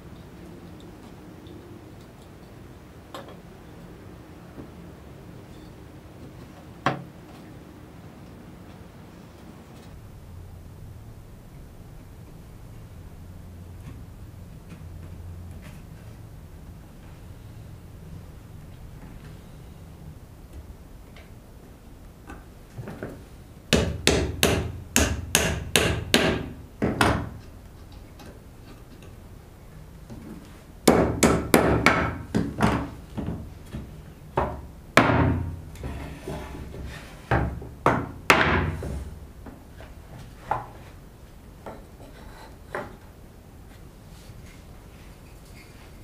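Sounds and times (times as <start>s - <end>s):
hammer knocking on wood: 23.7s - 27.3s, 30.8s - 33.4s, 34.4s - 35.6s.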